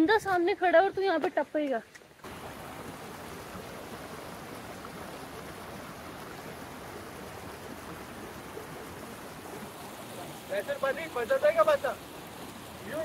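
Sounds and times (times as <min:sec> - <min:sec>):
stream rushing over rocks: 0:00.0 - 0:13.0.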